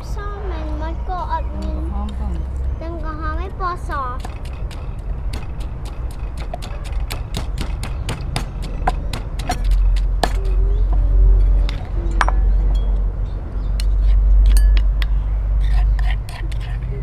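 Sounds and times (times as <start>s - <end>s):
steady low rumble: 0.0s - 17.0s
knife chopping on cutting board: 4.2s - 10.4s.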